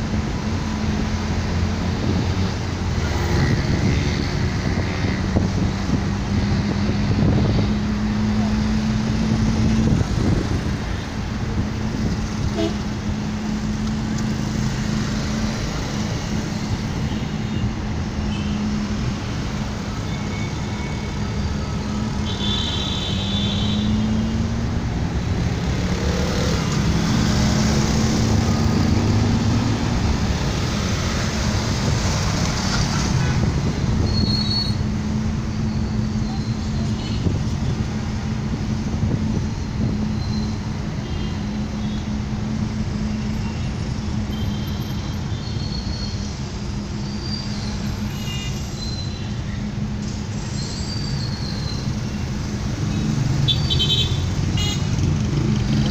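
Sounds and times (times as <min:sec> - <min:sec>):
traffic rumble: 0:00.0 - 0:55.9.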